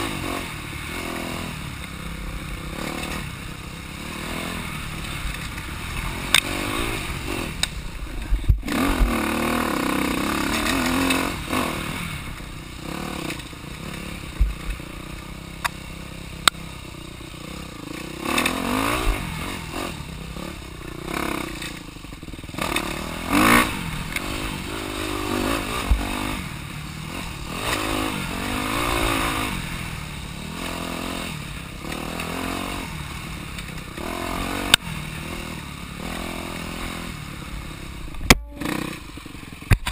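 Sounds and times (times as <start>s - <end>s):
dirt bike engine revving: 0.0s - 39.9s
bike knocking and rattling: 4.8s - 11.5s, 12.2s - 19.3s, 36.8s - 39.9s.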